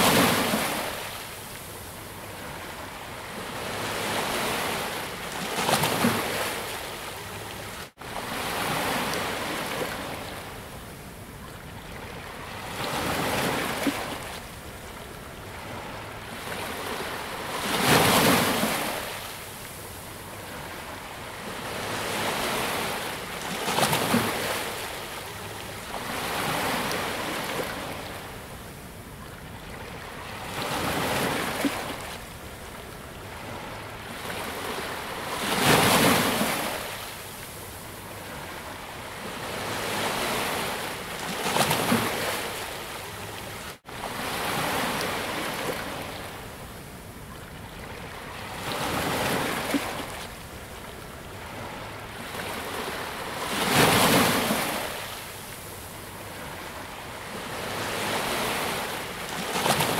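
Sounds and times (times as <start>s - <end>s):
sea waves breaking on beach: 0.0s - 10.4s, 51.4s - 59.9s.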